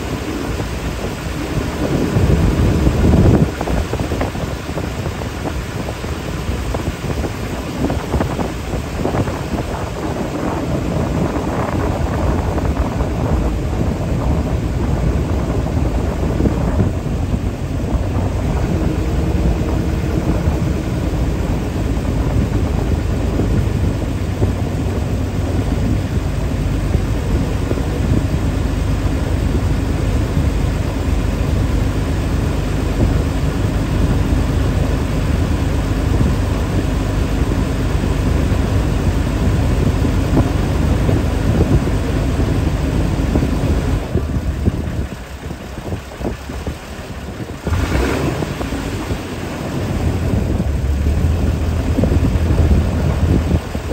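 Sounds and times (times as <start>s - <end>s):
boat engine running: 0.0s - 53.9s
wind on microphone: 0.0s - 53.9s.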